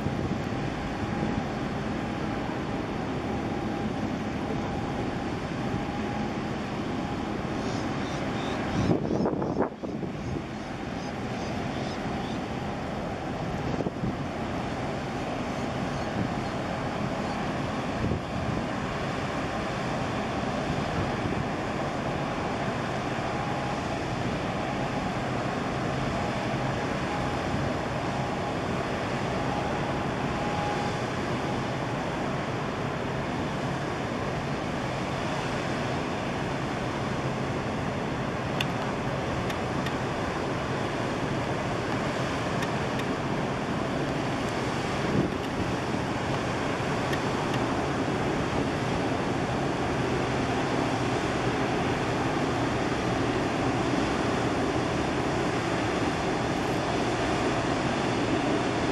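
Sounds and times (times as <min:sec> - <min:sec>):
wind noise on microphone: 0:00.0 - 0:02.0, 0:07.8 - 0:10.6, 0:13.2 - 0:14.5, 0:16.0 - 0:23.2, 0:41.2 - 0:58.9
harbour water wash: 0:00.0 - 0:58.9
low ship engine hum: 0:00.0 - 0:58.9.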